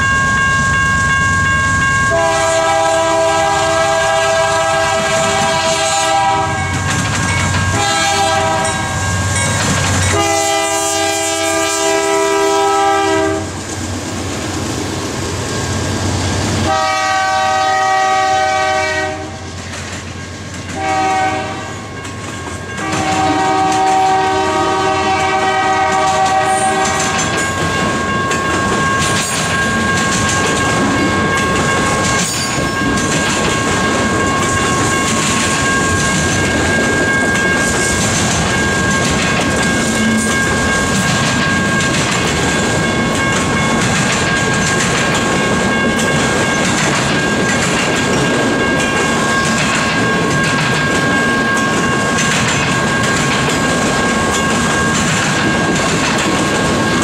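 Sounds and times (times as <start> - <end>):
high-pitched ringing: 0.0 - 2.4, 6.5 - 10.6, 26.5 - 55.8
train wheels rumbling on rails: 0.0 - 57.0
locomotive horn: 2.0 - 6.8, 7.7 - 9.0, 10.1 - 13.6, 16.6 - 19.5, 20.7 - 21.8, 22.8 - 27.3
wheels clicking over rail joints: 6.6 - 10.2, 25.8 - 57.0.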